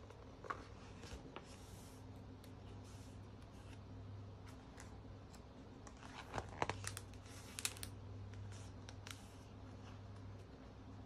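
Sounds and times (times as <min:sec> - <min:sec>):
low steady hum: 0:00.0 - 0:11.0
paper page rustling: 0:05.8 - 0:09.4.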